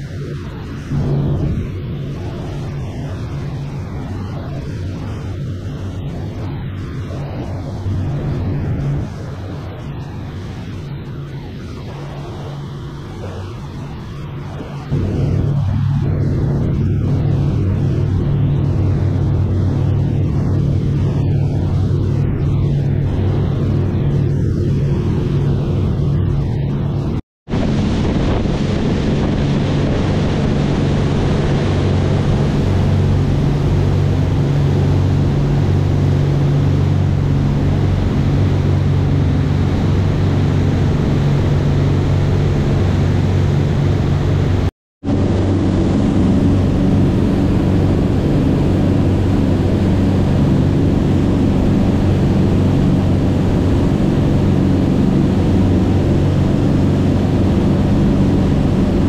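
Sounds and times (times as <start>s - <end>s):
boat engines droning: 0.0s - 59.0s
wake water rushing: 27.5s - 59.0s.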